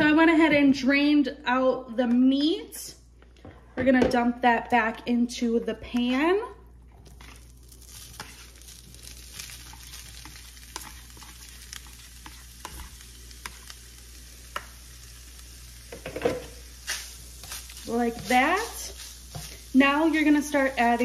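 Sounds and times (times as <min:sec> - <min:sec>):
meat sizzling in a frying pan: 0:07.0 - 0:21.0.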